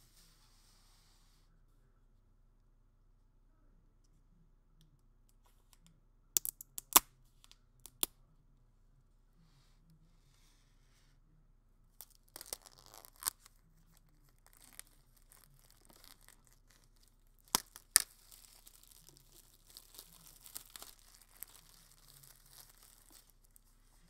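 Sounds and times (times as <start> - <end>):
plastic film crinkling: 12.0 - 24.0
plastic wrap ripping: 12.0 - 24.0.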